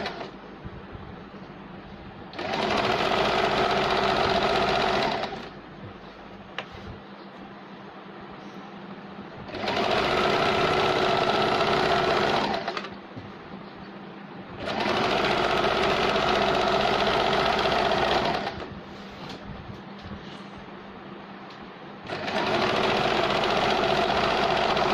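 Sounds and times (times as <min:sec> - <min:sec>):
sewing machine stitching: 0:02.3 - 0:05.6, 0:09.5 - 0:13.0, 0:14.6 - 0:18.7, 0:22.0 - 0:24.9.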